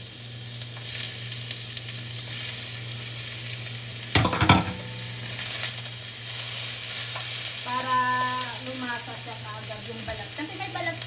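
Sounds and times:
vegetables sizzling in hot oil: 0.0s - 11.0s
clatter in wok: 4.1s - 5.1s.

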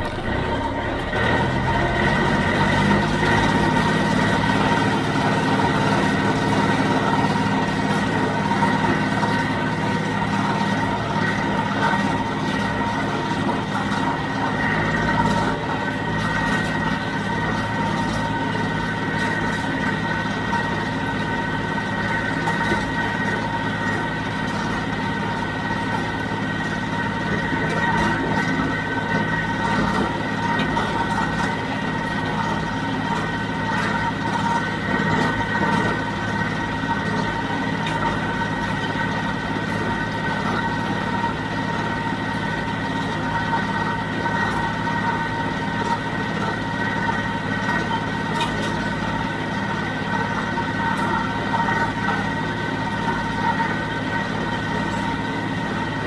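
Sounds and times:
high whine of baler: 0.0s - 56.0s
tractor diesel engine running: 0.0s - 56.0s.

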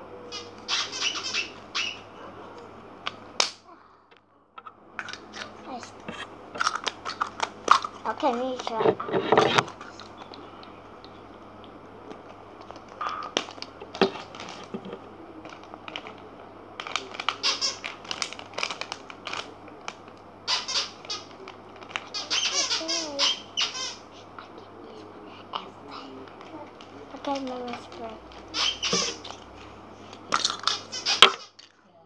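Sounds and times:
plastic packaging clicks and crinkles: 4.6s - 10.7s, 11.6s - 22.2s, 26.3s - 31.8s
short squeaky sounds: 28.5s - 29.3s.

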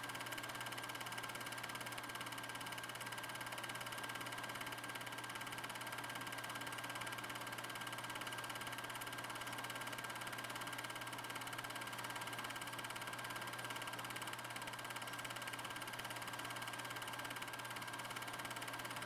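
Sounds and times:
film projector whirring: 0.0s - 19.0s.

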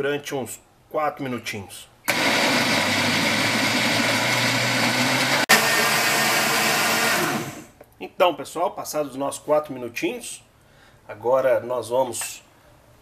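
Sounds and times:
blender motor running: 2.1s - 7.7s.

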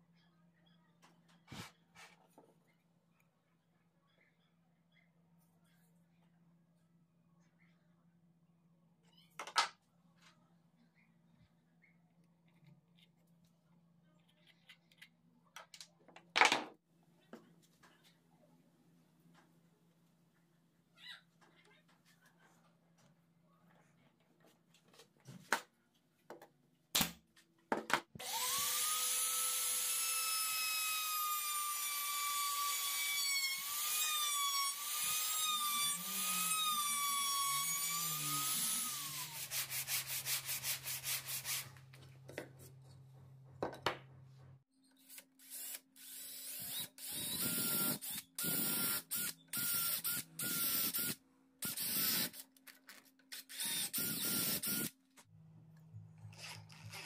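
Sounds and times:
cordless drill boring into wood: 28.2s - 39.4s, 45.4s - 52.4s, 53.3s - 54.9s
power tool whining: 28.2s - 39.4s
hand sanding: 39.2s - 41.8s.

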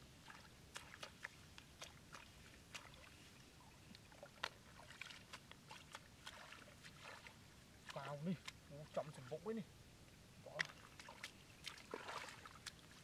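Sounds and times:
water dripping: 10.5s - 13.0s.

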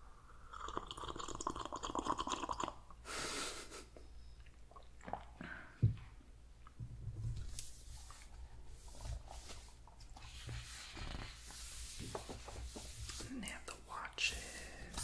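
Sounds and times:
sipping and swallowing: 0.4s - 3.0s, 4.4s - 5.7s
breathy hiss: 13.9s - 15.0s.

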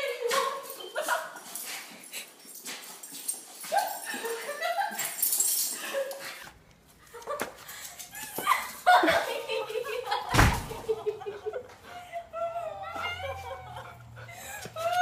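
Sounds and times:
dogs whining: 11.9s - 15.0s.

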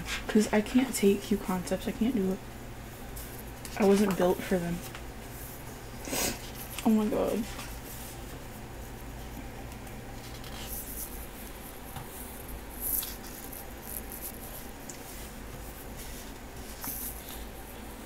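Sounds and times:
pages turning: 9.8s - 11.6s, 12.8s - 15.3s.

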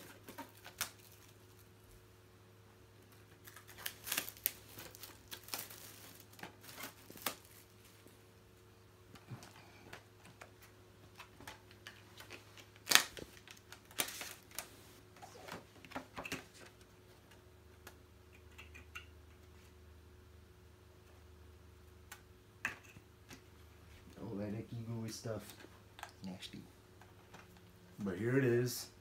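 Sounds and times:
plastic wrap crinkling: 0.0s - 1.8s, 3.0s - 8.1s, 11.1s - 15.4s.

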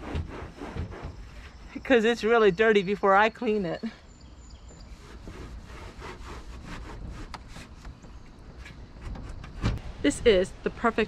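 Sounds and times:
cloth rag scrubbing window frame: 4.8s - 9.8s.

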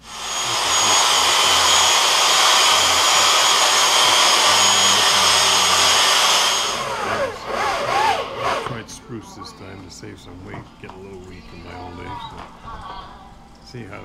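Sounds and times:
power tool whining on wood: 0.0s - 8.9s.

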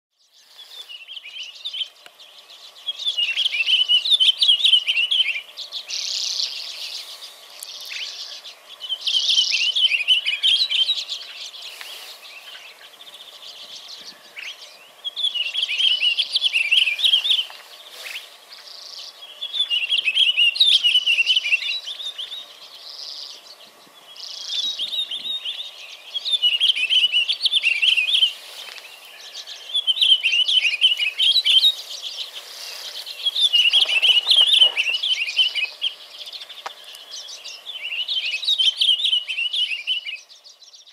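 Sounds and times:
bird singing warbled phrases: 0.1s - 40.9s.

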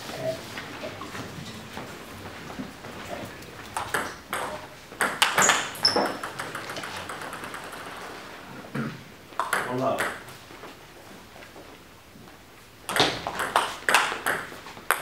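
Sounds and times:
table tennis ball clicks: 3.7s - 8.0s.

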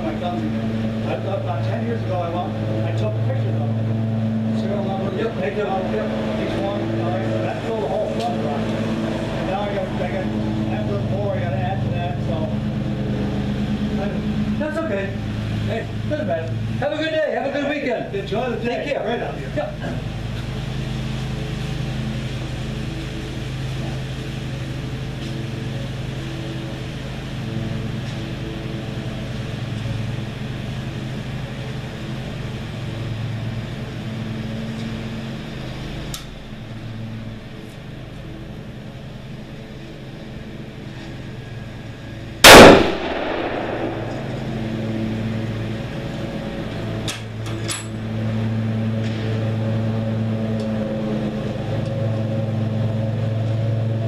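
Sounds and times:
low engine hum: 0.0s - 54.0s
rifle shot: 42.4s - 44.8s.

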